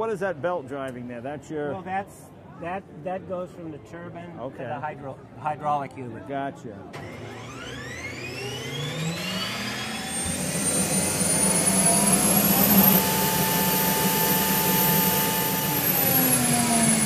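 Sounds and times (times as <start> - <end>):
gas turbine whine: 6.9 - 17.0.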